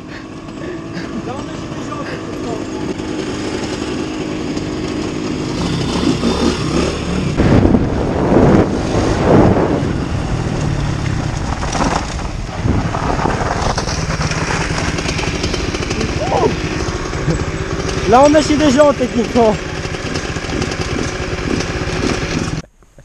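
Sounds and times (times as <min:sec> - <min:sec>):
dirt bike engines revving: 0:00.0 - 0:22.7
wind rushing on microphone: 0:07.3 - 0:15.1.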